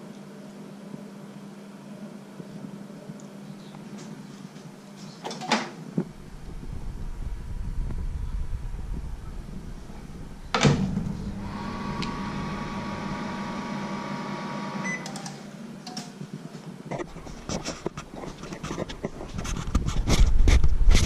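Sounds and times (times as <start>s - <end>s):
microwave oven humming: 6.0s - 15.7s
microwave door shutting: 10.5s - 13.4s.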